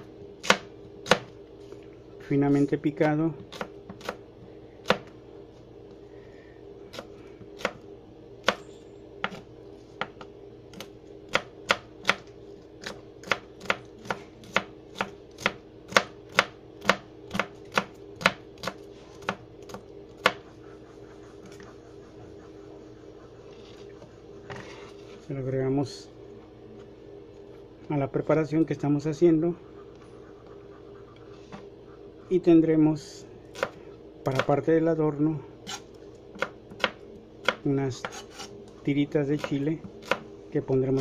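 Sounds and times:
steady low hum: 0.0s - 41.0s
knife chopping on plastic board: 0.4s - 1.3s, 9.2s - 9.4s, 10.0s - 20.5s.

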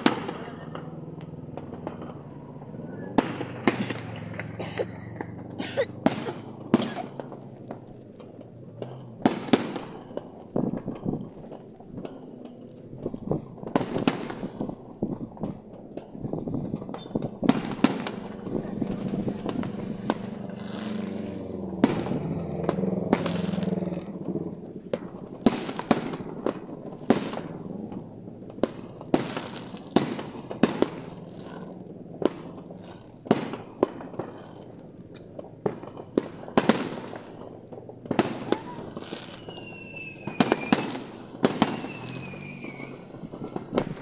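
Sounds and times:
fireworks bangs: 0.0s - 44.0s.

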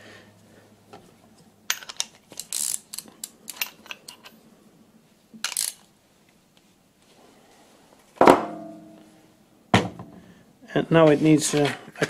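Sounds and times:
metal tools clicking and rattling: 1.7s - 4.4s, 5.4s - 5.8s.

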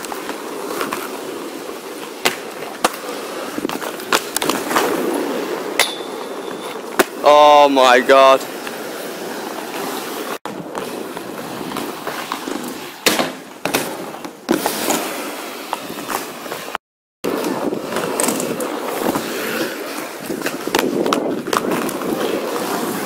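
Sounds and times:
skates clacking on ground: 0.0s - 8.8s, 9.5s - 23.0s
skate wheels rolling on asphalt: 0.0s - 23.0s.

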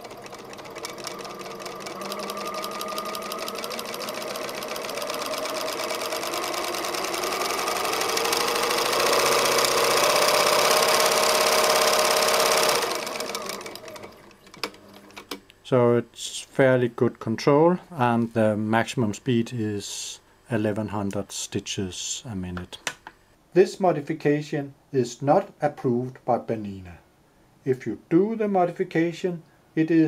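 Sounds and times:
sewing machine running: 0.0s - 15.0s.

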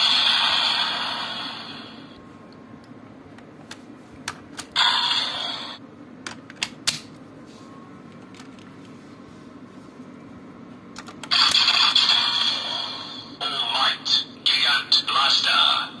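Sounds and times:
toy electronic sound effects: 11.3s - 13.0s.

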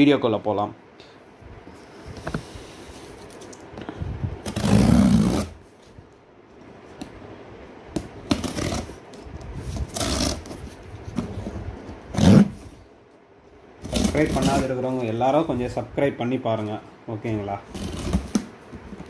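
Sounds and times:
packing tape ripping off cardboard: 4.4s - 5.6s, 8.0s - 9.0s, 9.7s - 10.7s, 12.1s - 12.7s, 13.8s - 14.7s, 17.7s - 18.5s.

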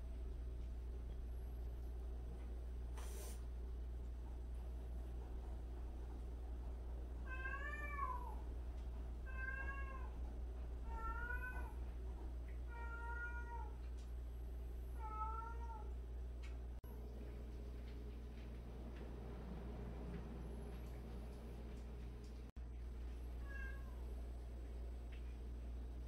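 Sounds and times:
cat meowing: 7.3s - 8.4s, 12.7s - 13.8s, 15.0s - 15.9s, 23.4s - 24.0s.

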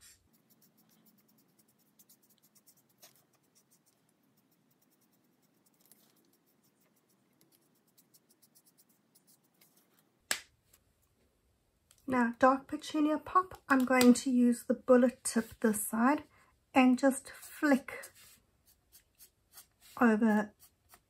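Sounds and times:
marker scratching on cardstock: 0.0s - 10.0s, 17.3s - 21.0s.

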